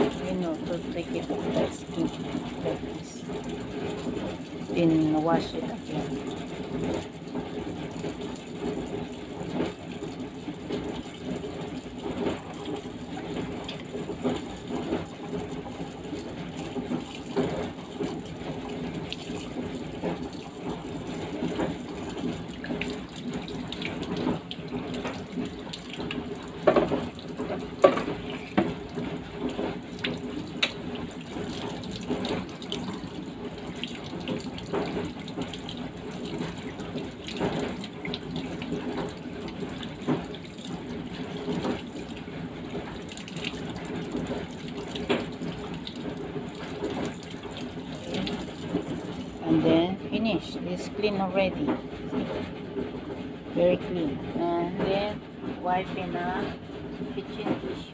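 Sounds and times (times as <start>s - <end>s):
hands rinsing fish: 0.0s - 49.5s
tap water splashing in sink: 0.0s - 49.5s.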